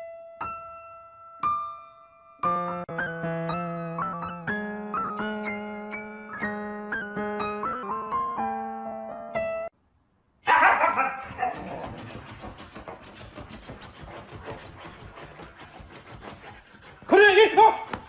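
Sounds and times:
piano music: 0:00.0 - 0:09.8
husky vocal burst: 0:10.4 - 0:12.5
short rasping sounds: 0:10.8 - 0:18.0.

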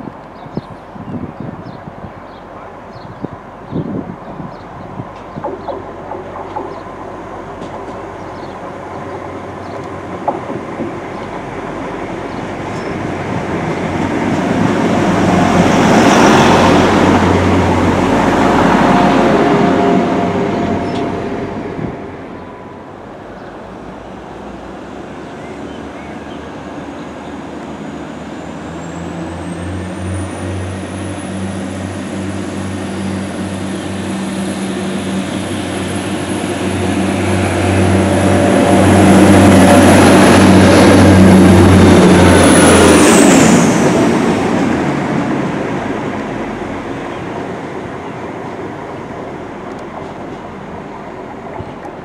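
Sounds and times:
diesel train engine hum: 0:00.0 - 0:52.0.

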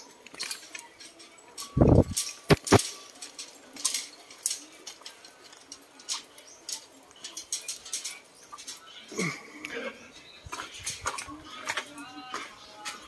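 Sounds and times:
light metallic clicks and clinks: 0:00.0 - 0:09.8
footsteps on metal grating: 0:00.4 - 0:08.8, 0:10.5 - 0:13.0
loud thumps: 0:01.9 - 0:02.8.

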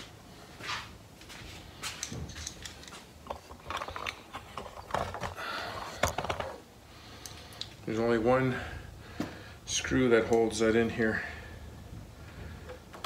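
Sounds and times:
plastic cover clicking and rattling: 0:02.4 - 0:06.6.

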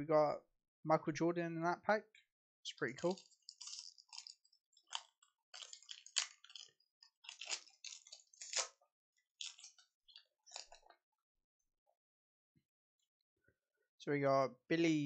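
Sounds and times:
foil wrapper crinkling and tearing: 0:02.8 - 0:08.8, 0:09.4 - 0:10.9.

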